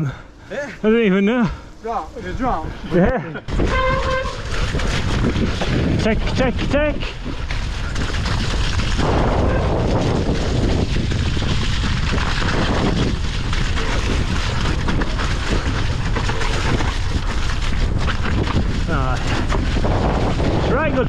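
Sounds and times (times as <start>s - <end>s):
bike tyres rolling through mud: 0.8s - 21.0s
wind rumble on microphone: 2.2s - 21.0s
bike rattling over bumps: 3.2s - 21.0s.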